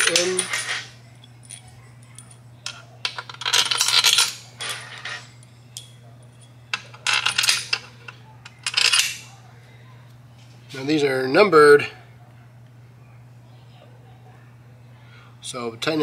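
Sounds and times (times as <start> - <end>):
metal bolts clinking: 0.0 - 9.3.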